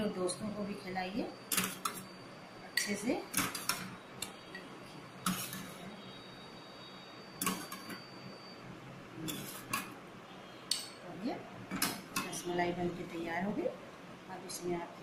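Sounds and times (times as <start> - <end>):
faint high ringing: 0.0 - 13.0
metal spoon clinking on glass: 1.5 - 2.1, 7.4 - 8.0.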